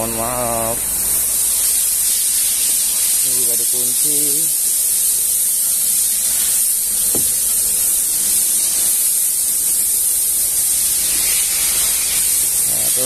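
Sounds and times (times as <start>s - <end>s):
steady high hiss: 0.0s - 13.0s
short knock: 7.1s - 7.4s.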